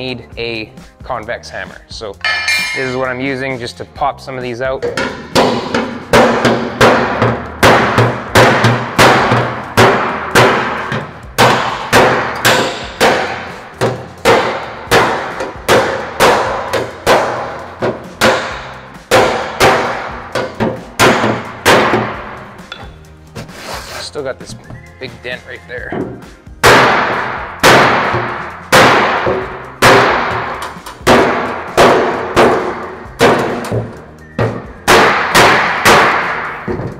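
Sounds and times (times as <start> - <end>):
hammer clanging on sheet metal: 2.2 - 3.3, 4.8 - 23.1.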